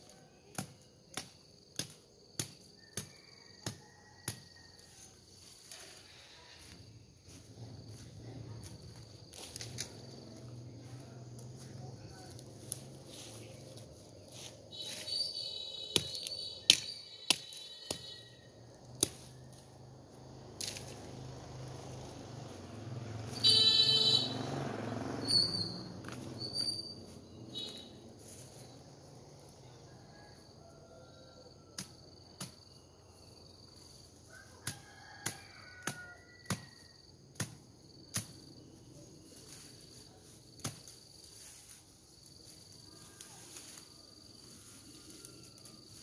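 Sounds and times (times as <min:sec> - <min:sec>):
insects chirping: 0:00.0 - 0:46.0
woody stems snapping: 0:18.8 - 0:19.7, 0:20.6 - 0:21.2.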